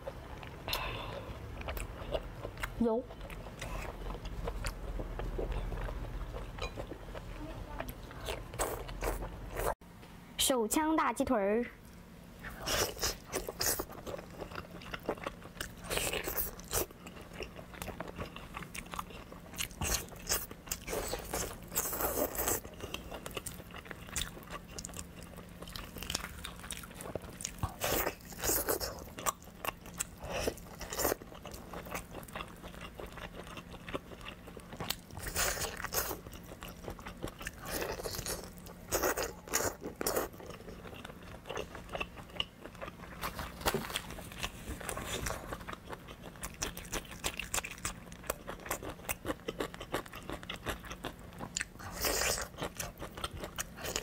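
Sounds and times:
biting and chewing chicken: 12.6 - 54.0.

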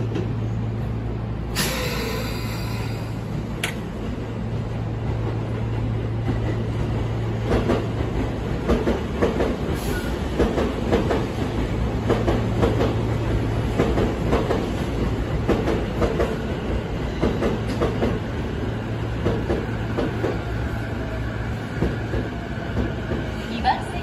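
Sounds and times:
click: 3.6 - 3.8.

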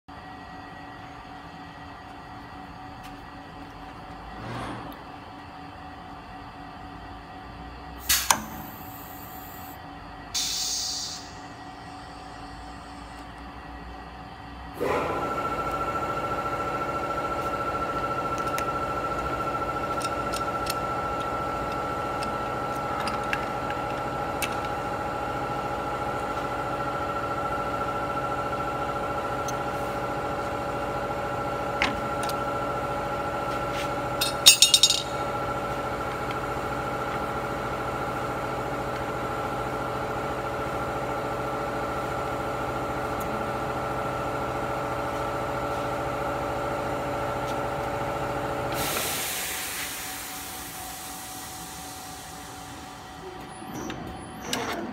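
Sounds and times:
machine hum with high whine: 0.1 - 54.9
metal parts clinking: 34.2 - 35.1.

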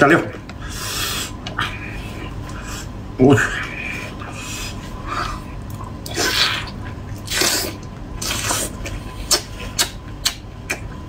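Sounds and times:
wet mouth clicks: 6.0 - 10.9
wet slurps: 6.0 - 10.9.

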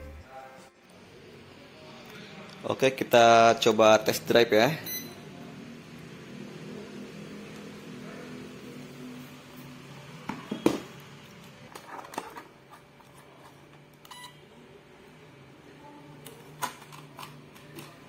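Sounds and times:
short electronic beep: 4.8 - 5.2.

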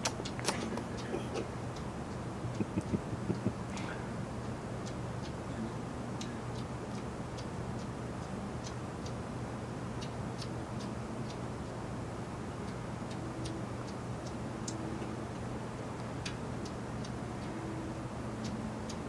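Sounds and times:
cat chewing and licking: 0.0 - 5.4
steady low hum: 0.0 - 19.0.

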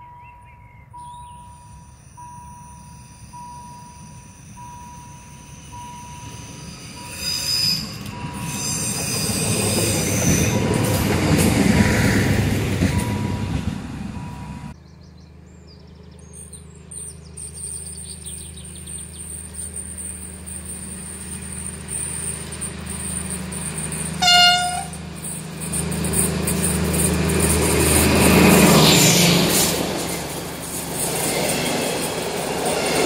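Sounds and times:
diesel locomotive engine drone: 0.0 - 33.0
passing train: 0.0 - 33.0
train horn blast: 24.2 - 25.1.

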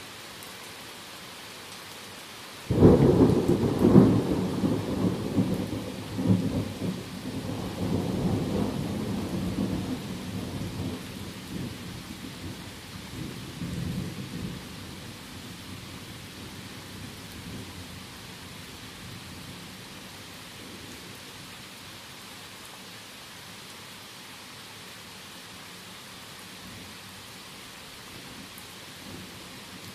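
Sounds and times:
heavy rain: 0.0 - 29.9
rolling thunder: 2.7 - 11.8.

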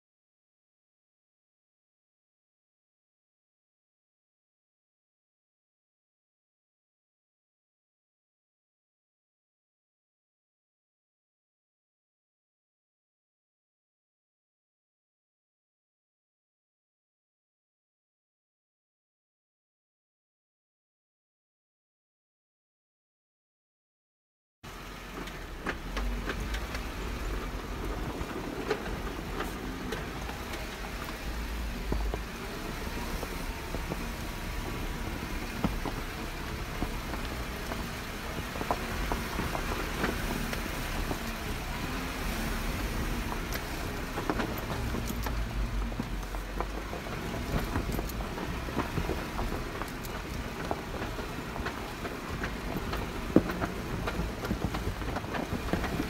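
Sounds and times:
jeep engine rumbling: 24.7 - 56.0.

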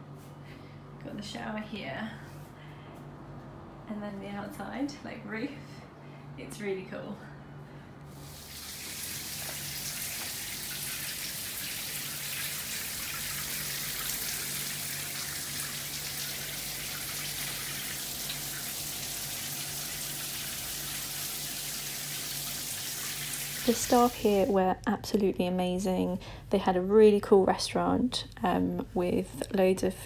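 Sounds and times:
low steady hum: 0.0 - 30.0
shower spraying on tiled floor: 8.2 - 24.5.

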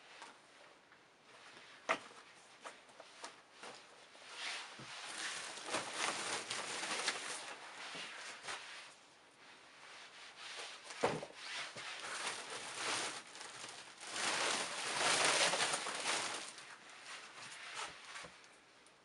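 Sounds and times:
shoes rustling and rubbing: 10.0 - 18.4.

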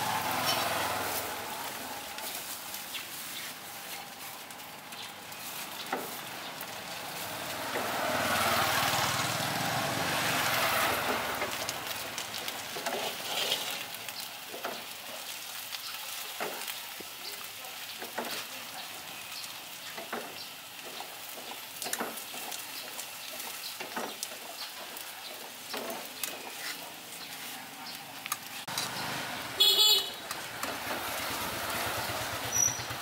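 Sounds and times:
batter sizzling in a wok: 0.0 - 30.0.

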